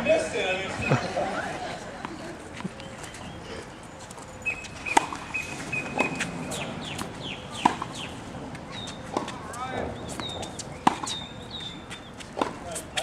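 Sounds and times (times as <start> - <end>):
tennis ball struck by rackets: 4.8 - 8.1, 10.0 - 11.3, 12.0 - 13.0.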